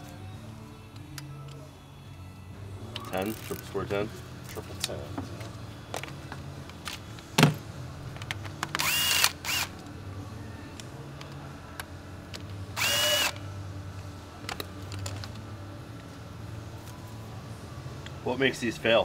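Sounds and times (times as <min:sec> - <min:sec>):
power tool motor whining: 0:08.8 - 0:09.8, 0:12.8 - 0:13.4.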